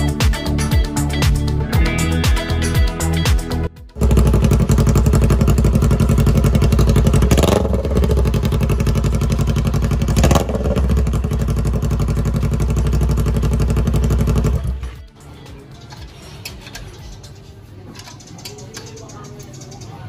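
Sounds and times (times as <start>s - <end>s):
motorcycle engine idling and revving: 3.9s - 15.7s.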